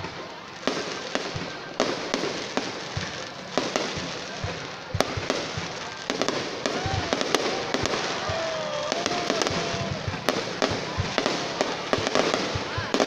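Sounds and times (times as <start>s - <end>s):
firework crackling: 0.0s - 13.0s.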